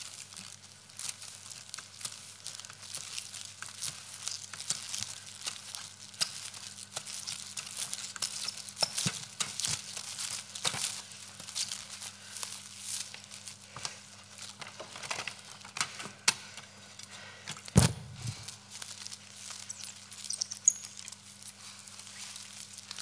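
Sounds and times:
plastic strips crinkling and rustling: 0.0 - 23.0
low hum: 17.8 - 18.6.

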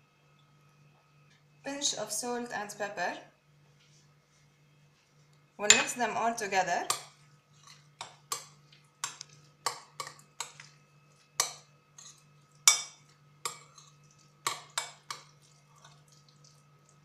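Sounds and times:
metal spoon clinking glass bowl: 5.6 - 6.0, 11.4 - 16.0
stirring thick wet mixture: 7.5 - 17.0.

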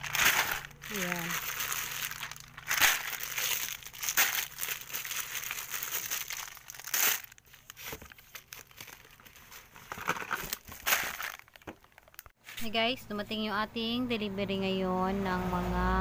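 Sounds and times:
plastic sachets crinkling: 0.0 - 12.4.

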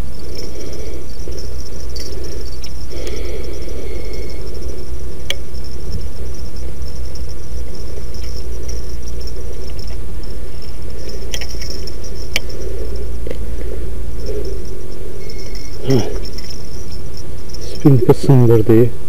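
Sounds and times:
low rumble: 0.0 - 17.9
insects chirring: 0.0 - 19.0
sharp clicks: 1.4 - 3.2, 5.2 - 14.6.

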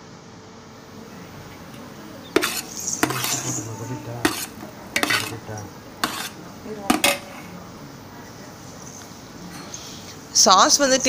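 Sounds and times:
metal ladle scraping metal pot: 1.6 - 7.6.

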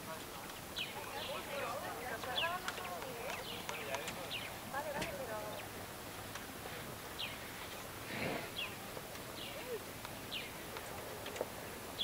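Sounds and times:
bird chirping: 0.7 - 4.6, 7.1 - 11.4.

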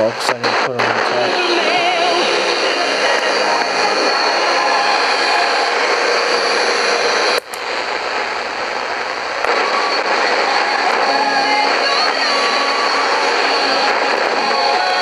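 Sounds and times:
radio static hiss: 0.0 - 15.0
radio click: 7.4 - 12.2.

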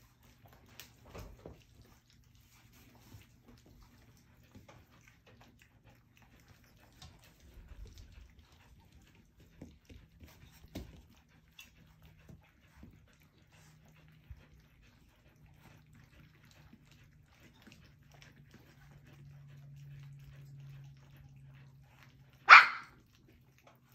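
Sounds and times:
faint low hum: 0.0 - 23.9
puppies lapping food: 0.0 - 23.9.

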